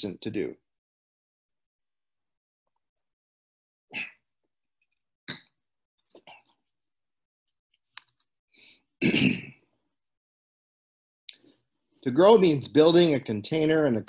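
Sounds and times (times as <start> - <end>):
short cough: 9.0 - 9.6.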